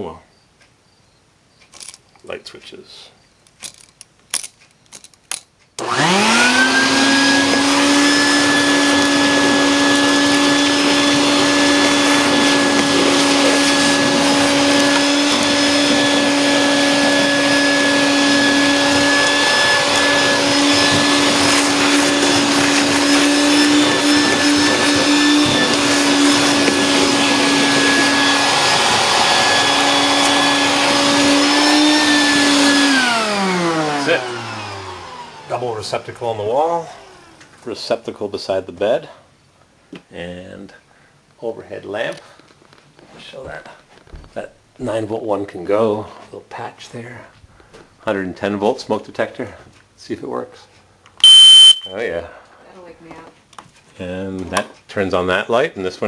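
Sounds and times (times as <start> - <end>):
vacuum cleaner running: 5.8 - 37.5.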